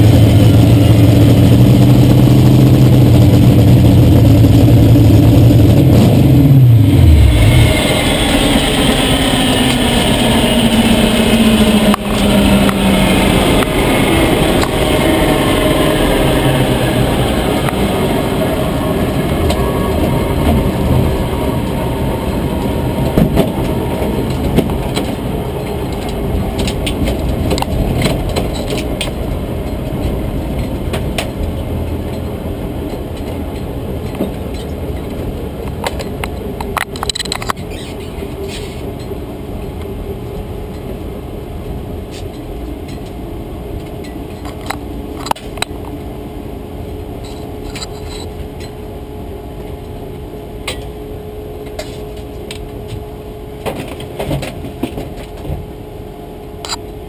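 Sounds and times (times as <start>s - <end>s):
race car engine rumble: 0.0s - 57.0s
clicks and rattles: 34.1s - 37.9s.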